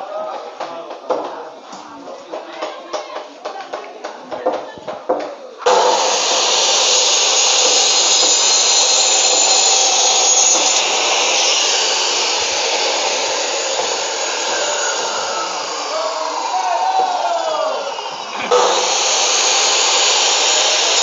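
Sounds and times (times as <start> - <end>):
saw cutting through bone: 5.7 - 21.0.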